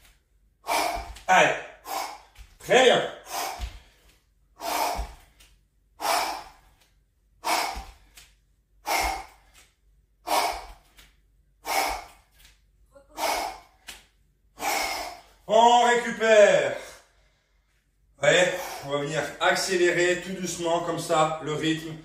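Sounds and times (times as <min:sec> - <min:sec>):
man breathing out hard: 0:00.6 - 0:02.5, 0:03.2 - 0:05.4, 0:06.0 - 0:06.8, 0:07.4 - 0:09.6, 0:10.2 - 0:11.0, 0:11.6 - 0:12.3, 0:13.1 - 0:13.8, 0:14.6 - 0:15.4.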